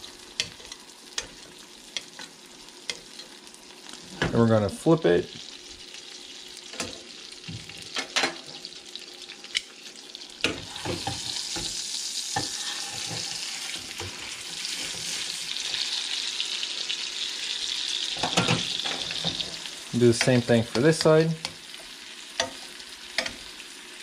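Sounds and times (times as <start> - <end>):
steak sizzling in butter: 0.0 - 4.2, 5.0 - 24.0
utensils clinking against pan: 18.2 - 19.6, 23.2 - 23.4.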